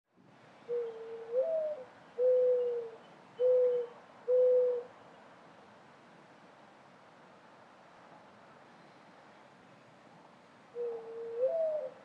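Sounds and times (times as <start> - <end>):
dove cooing: 0.7 - 4.9, 10.8 - 12.0.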